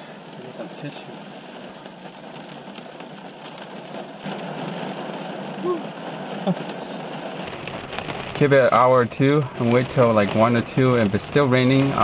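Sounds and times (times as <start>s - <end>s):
rain on car roof: 0.0s - 12.0s
raindrop ticks: 0.0s - 12.0s.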